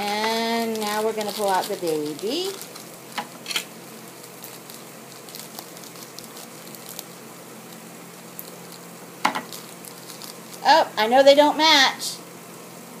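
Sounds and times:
scissors cutting plastic: 0.0s - 7.1s
plastic wrapper crinkling: 0.0s - 10.7s
steady low hum: 0.0s - 13.0s.

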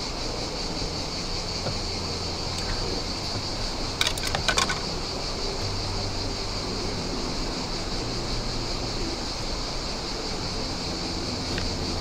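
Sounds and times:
high-pitched hiss: 0.0s - 12.0s
wind: 0.0s - 12.0s.

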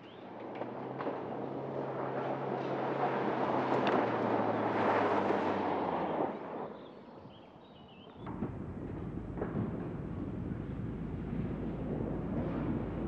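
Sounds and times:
engine running under load: 8.2s - 13.0s.

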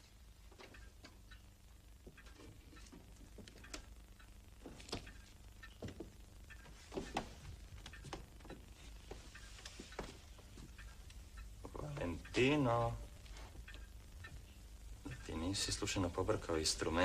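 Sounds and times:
faint low hum: 0.0s - 17.0s
footsteps on floor: 5.8s - 10.8s.

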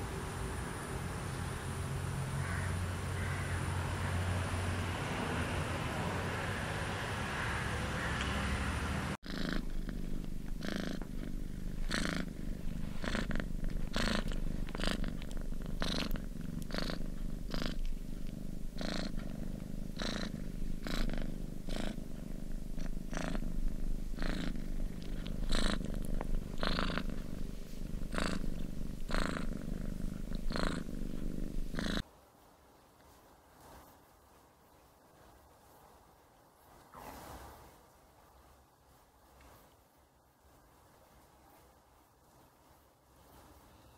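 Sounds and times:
cat purring: 9.1s - 32.1s.

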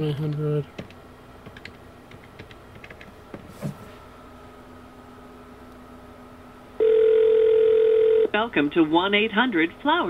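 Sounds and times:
telephone call tone: 6.8s - 8.4s.

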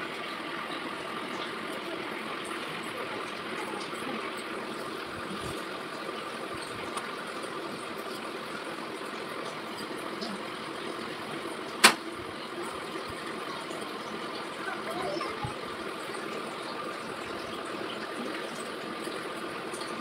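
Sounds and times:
room hum and hiss: 0.0s - 20.0s
sharp snap: 11.8s - 12.0s.

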